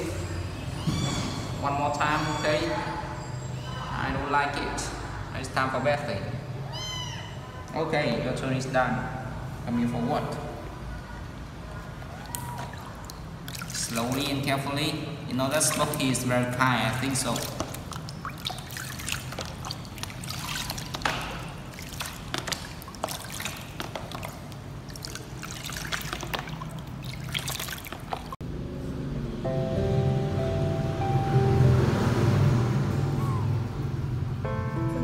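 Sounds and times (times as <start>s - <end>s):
water sloshing in plastic basin: 11.9s - 14.8s, 15.5s - 28.4s
small splashes: 12.0s - 14.7s, 15.4s - 28.4s
music: 29.2s - 35.0s.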